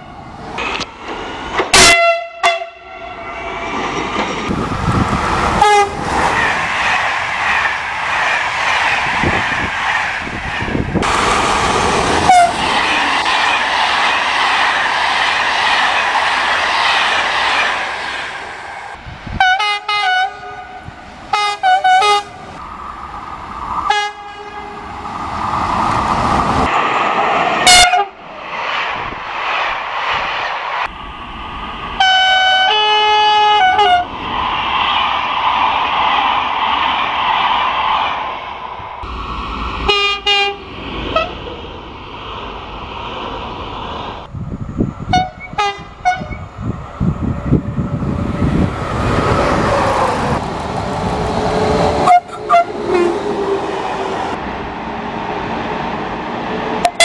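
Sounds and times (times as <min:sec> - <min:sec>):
train rumbling past: 0:00.0 - 0:57.0
train horn blasts: 0:01.7 - 0:03.2, 0:05.6 - 0:06.0, 0:12.3 - 0:12.6, 0:19.4 - 0:22.4, 0:23.9 - 0:24.8, 0:27.6 - 0:28.2, 0:32.0 - 0:34.1, 0:39.9 - 0:40.6, 0:45.1 - 0:46.4, 0:52.0 - 0:53.2
two-tone train horn: 0:01.7 - 0:03.2, 0:05.6 - 0:06.0, 0:12.3 - 0:12.6, 0:19.4 - 0:22.4, 0:23.9 - 0:24.8, 0:27.6 - 0:28.2, 0:32.0 - 0:34.1, 0:39.9 - 0:40.6, 0:45.1 - 0:46.4, 0:52.0 - 0:53.2.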